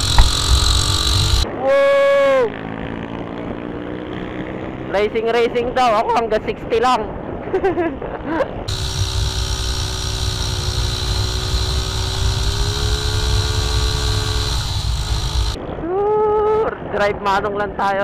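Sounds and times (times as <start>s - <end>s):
motorcycle engine running: 0.0s - 1.5s, 8.7s - 15.6s
rising engine-like note: 8.7s - 15.6s.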